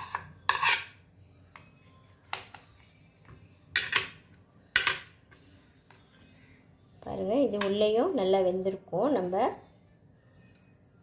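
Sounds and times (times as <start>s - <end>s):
knife scraping plastic plate: 0.0s - 1.0s.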